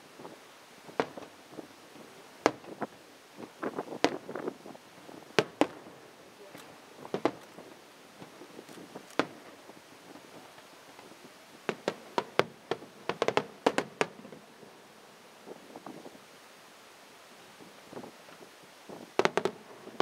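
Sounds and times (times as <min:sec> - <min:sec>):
fireworks bursting bangs: 0:00.0 - 0:14.7, 0:18.9 - 0:20.0.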